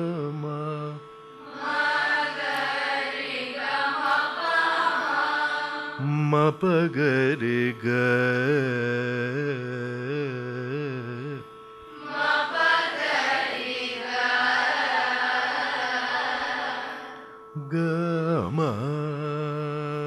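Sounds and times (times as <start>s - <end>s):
man singing: 0.0s - 1.1s, 6.0s - 11.6s, 17.6s - 20.0s
steady drone: 0.0s - 20.0s
group of voices singing: 1.5s - 6.5s, 12.0s - 17.2s.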